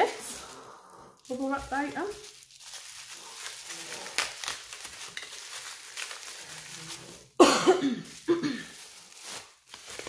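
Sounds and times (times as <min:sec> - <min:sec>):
bubble wrap rustling: 0:00.0 - 0:10.0
person coughing: 0:07.4 - 0:08.8.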